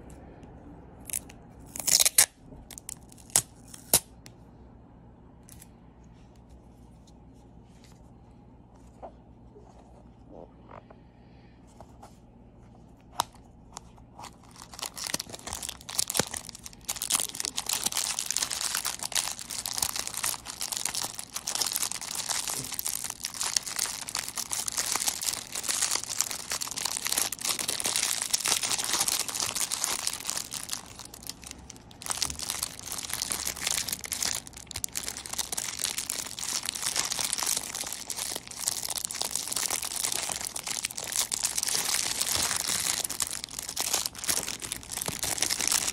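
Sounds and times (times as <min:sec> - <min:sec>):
plastic wrapper crinkling: 0:14.2 - 0:45.9.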